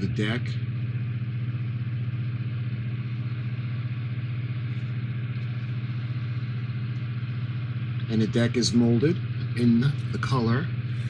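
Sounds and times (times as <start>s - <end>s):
buzzing machine hum: 0.0s - 11.0s.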